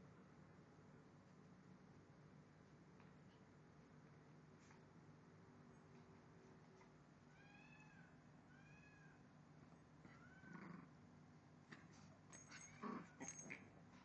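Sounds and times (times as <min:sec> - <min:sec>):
small dog whining: 0:10.0 - 0:10.9, 0:12.4 - 0:13.6.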